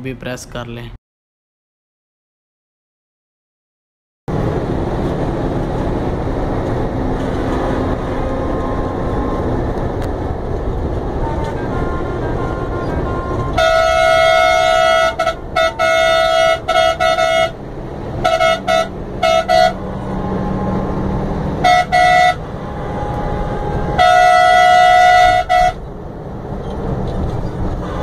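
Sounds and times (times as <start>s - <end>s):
road noise: 0.0s - 1.0s, 4.3s - 28.0s
bus engine: 4.3s - 28.0s
bus horn blasts: 7.2s - 10.1s, 10.7s - 25.9s, 27.6s - 28.0s.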